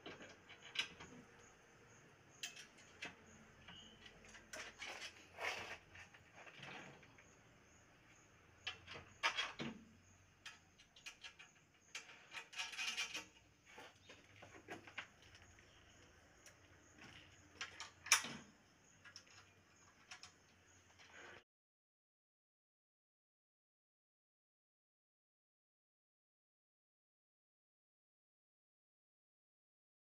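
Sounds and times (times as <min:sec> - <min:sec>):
faint metal clinks and scrapes: 0:00.0 - 0:21.4.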